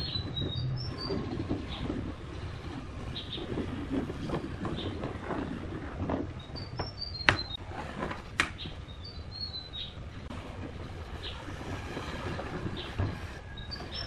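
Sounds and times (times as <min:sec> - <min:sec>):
bird chirps: 0:00.0 - 0:02.0, 0:06.4 - 0:07.6, 0:08.6 - 0:10.1.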